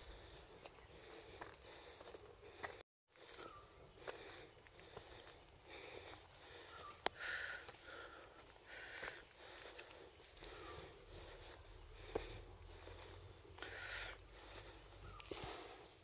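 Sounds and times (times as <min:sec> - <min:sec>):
faint wildlife chirps: 0:00.0 - 0:16.0
footsteps on dirt path: 0:00.0 - 0:16.0.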